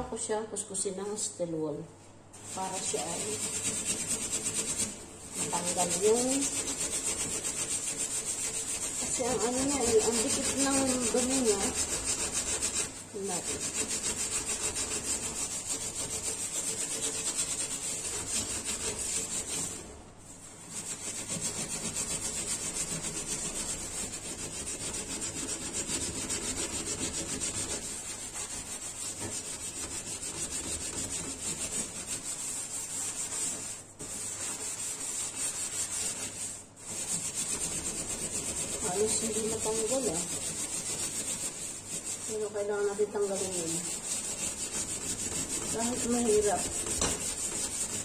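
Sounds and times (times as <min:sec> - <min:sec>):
steel wool scrubbing metal stove: 0:02.4 - 0:48.0.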